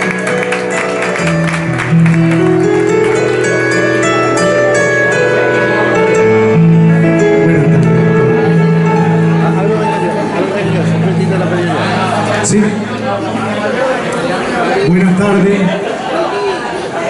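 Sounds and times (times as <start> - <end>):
applause: 0.0 - 3.6
electronic keyboard chords: 0.0 - 15.2.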